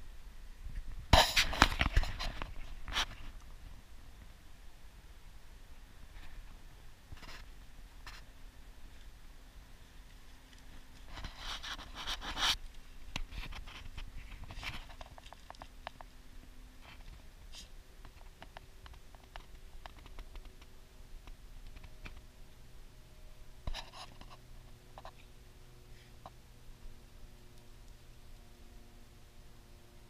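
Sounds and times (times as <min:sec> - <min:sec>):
faint steady hum: 0:00.0 - 0:30.0
dogs scratching in loose dirt: 0:09.8 - 0:16.1.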